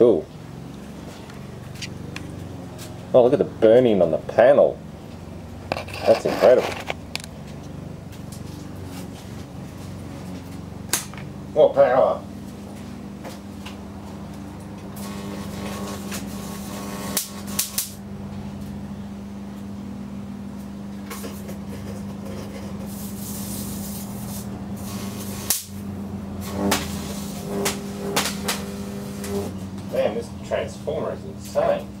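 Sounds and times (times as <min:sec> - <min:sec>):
transformer humming: 0:00.0 - 0:32.0
electric arcs snapping: 0:10.4 - 0:11.3, 0:14.4 - 0:18.0, 0:22.8 - 0:30.1.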